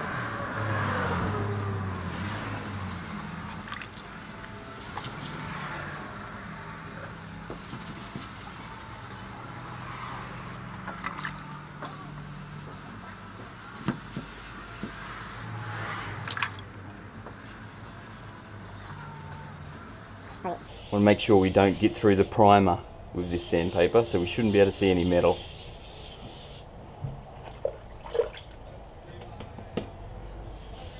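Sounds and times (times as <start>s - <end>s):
wet sanding block rubbing metal: 0.0s - 3.3s, 7.5s - 10.7s, 11.3s - 15.9s, 17.2s - 22.1s, 23.3s - 26.6s.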